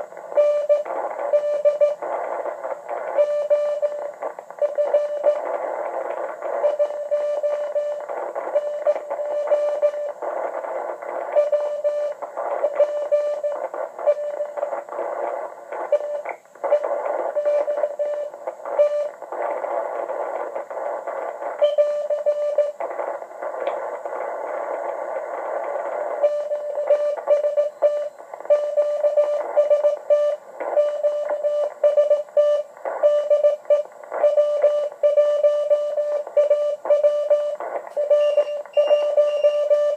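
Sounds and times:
radio band noise hiss: 0.0 - 39.9
morse code tone: 0.4 - 2.0, 3.2 - 5.5, 6.6 - 10.1, 11.3 - 14.7, 15.9 - 19.2, 21.6 - 22.8, 26.2 - 39.9.

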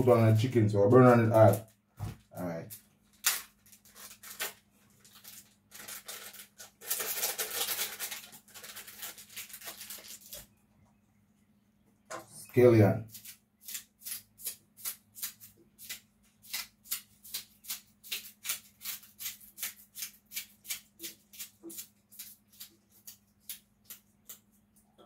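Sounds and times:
knife slicing scallions: 13.1 - 24.5.

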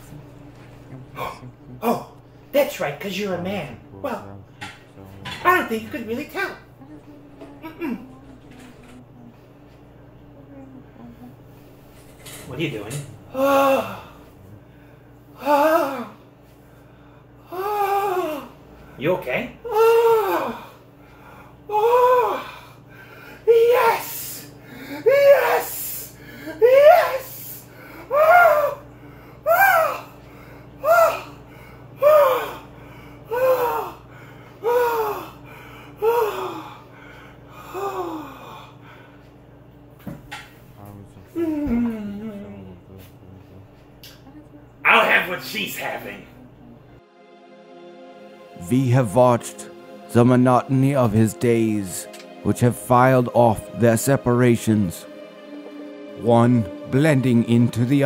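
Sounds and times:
person moaning loudly: 0.0 - 2.2, 3.3 - 5.6, 6.4 - 9.4, 13.0 - 16.2, 17.4 - 18.6, 19.6 - 20.8, 21.7 - 30.2, 30.8 - 36.9, 37.5 - 38.8, 40.8 - 44.0.

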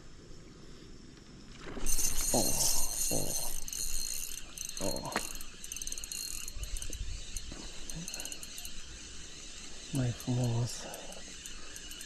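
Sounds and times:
fishing reel clicking: 1.7 - 12.0.

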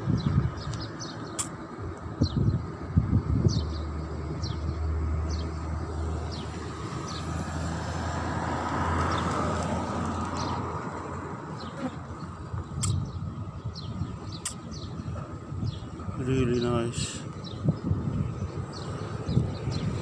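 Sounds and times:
motor vehicle passing: 2.2 - 16.2
bird chirping: 11.6 - 20.0.

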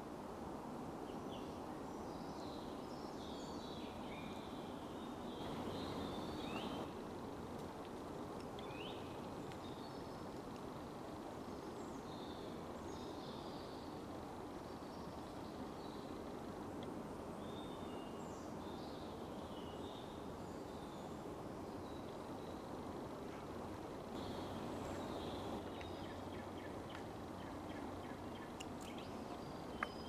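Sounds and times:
steady background hiss: 0.0 - 30.0
birds singing and chirping: 5.1 - 6.9, 24.2 - 30.0.

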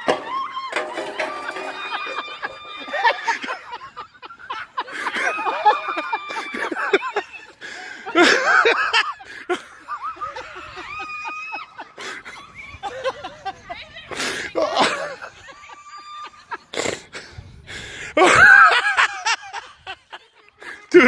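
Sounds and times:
whoops and high-pitched cries: 0.0 - 3.5, 5.1 - 7.6, 9.9 - 12.8, 14.6 - 16.6
men laughing hard: 0.0 - 21.0.

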